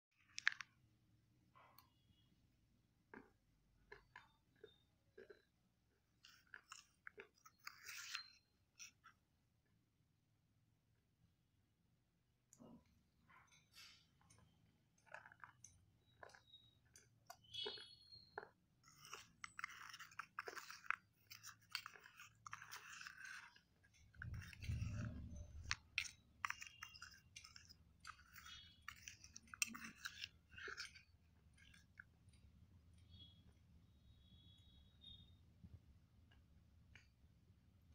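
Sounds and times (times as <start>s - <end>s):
spoon stirring wet paste: 0.2s - 10.4s, 12.0s - 37.9s
squelching and scraping in steel bowl: 3.2s - 9.2s, 12.6s - 35.2s.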